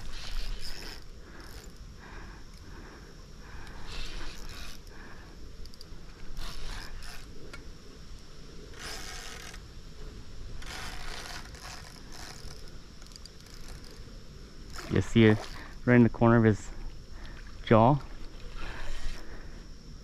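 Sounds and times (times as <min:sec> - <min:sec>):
fishing reel clicking: 0:00.0 - 0:01.9, 0:03.6 - 0:05.0, 0:05.6 - 0:07.6, 0:08.7 - 0:09.6, 0:10.6 - 0:15.8, 0:18.4 - 0:19.3.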